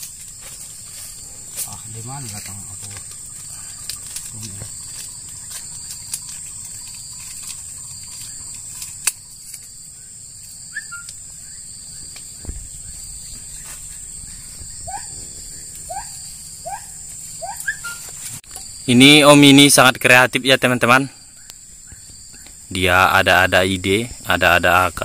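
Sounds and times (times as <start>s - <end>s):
high-pitched insect drone: 0.0s - 25.0s
rising bird calls: 2.6s - 18.4s, 21.1s - 22.7s.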